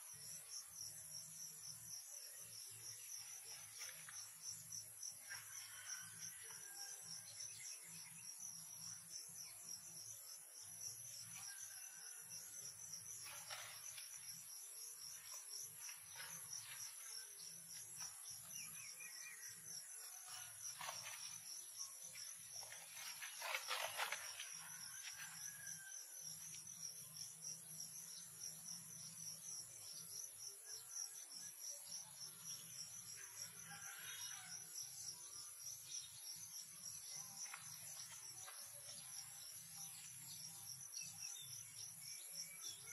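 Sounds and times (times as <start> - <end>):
insects trilling: 0.0 - 42.9
rustle: 13.0 - 14.4, 20.2 - 26.8.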